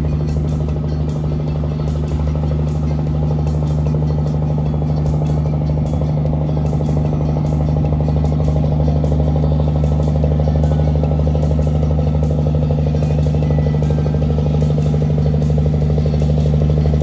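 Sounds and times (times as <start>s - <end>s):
boat diesel engine humming: 0.0s - 17.0s.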